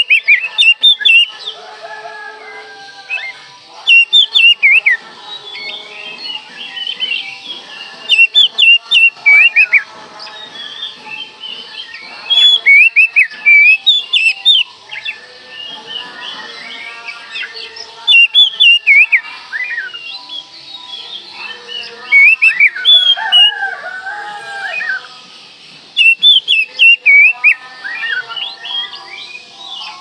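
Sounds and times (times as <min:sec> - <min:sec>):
bird singing whistled notes: 0:00.0 - 0:30.0.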